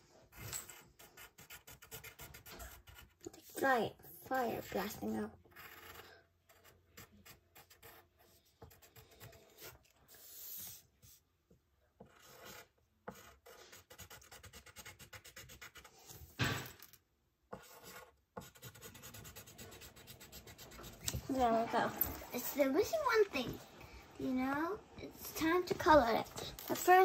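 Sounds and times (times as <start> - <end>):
pencil scratching on paper: 0.3 - 11.2, 12.0 - 16.4, 17.5 - 22.7.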